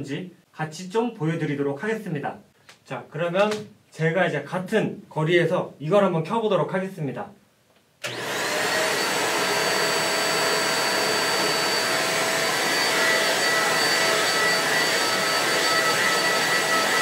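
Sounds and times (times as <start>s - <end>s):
stick vacuum cleaner running: 8.0s - 17.0s.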